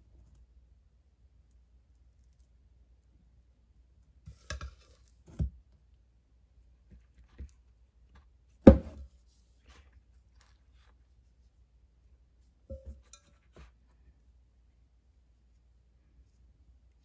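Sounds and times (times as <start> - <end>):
glass cup set down on counter: 8.7 - 9.0, 12.7 - 13.2.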